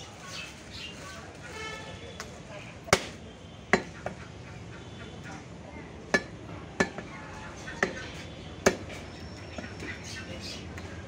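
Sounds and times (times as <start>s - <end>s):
cleaver chopping meat on wood: 2.9s - 4.0s, 6.1s - 7.1s, 8.6s - 9.0s.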